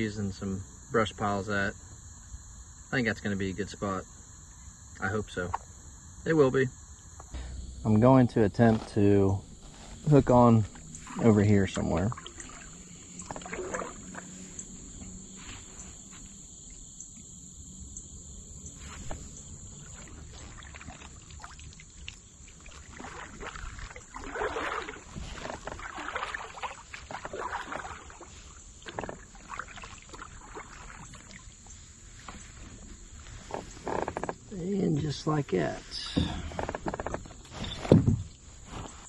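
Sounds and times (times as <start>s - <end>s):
kayak paddle splashing: 9.5s - 14.7s, 18.9s - 34.1s.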